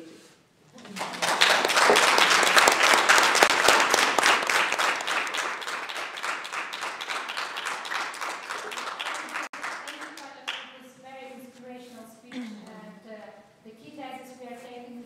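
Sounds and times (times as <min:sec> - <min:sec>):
audience applause: 0:00.8 - 0:10.3.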